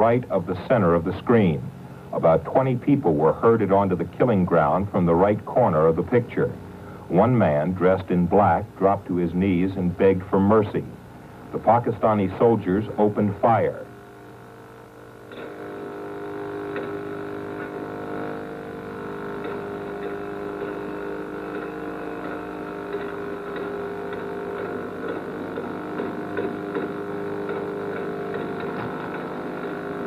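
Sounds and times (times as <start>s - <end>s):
electrical hum: 0.0s - 30.0s.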